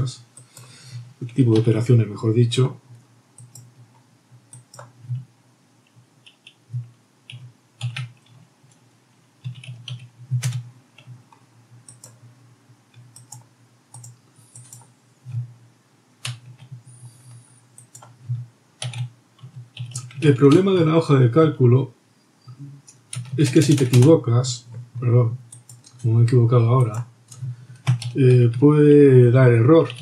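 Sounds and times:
computer keyboard typing: 3.4 - 5.2, 5.9 - 8.8, 9.4 - 12.3, 13.0 - 15.5, 16.2 - 20.7, 22.9 - 26.1, 26.8 - 28.6, 29.6 - 30.0.

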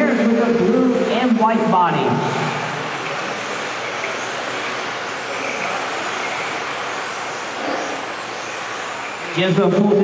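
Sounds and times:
rc cars motor whine: 2.1 - 10.0.

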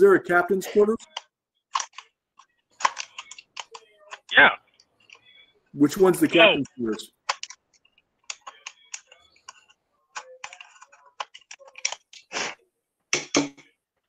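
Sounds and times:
keyboard typing: 1.0 - 4.4, 6.5 - 12.3.

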